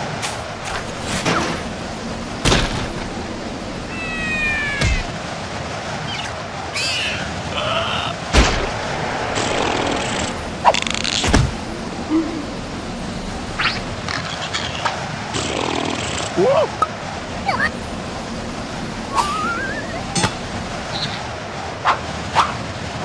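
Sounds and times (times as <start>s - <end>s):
steady background hiss: 0.0s - 23.0s
cartoon whacks and thuds: 4.8s - 5.1s, 11.2s - 11.6s
squeaky character vocal noises: 17.4s - 17.7s.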